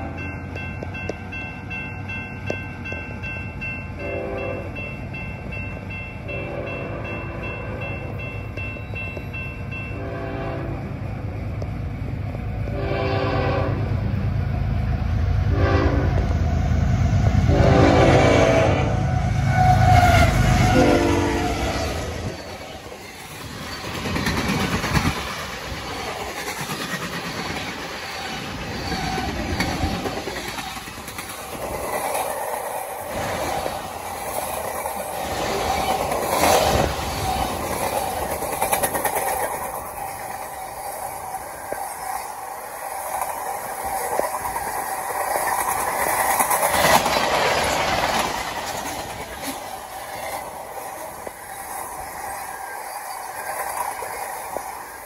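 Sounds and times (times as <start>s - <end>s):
diesel locomotive engine rumble: 0.0s - 55.0s
railcars rattling and clattering: 0.0s - 55.0s
locomotive horn blasts: 4.0s - 4.8s, 6.3s - 7.7s, 9.9s - 11.0s, 12.7s - 14.0s, 15.5s - 16.3s, 17.4s - 22.2s.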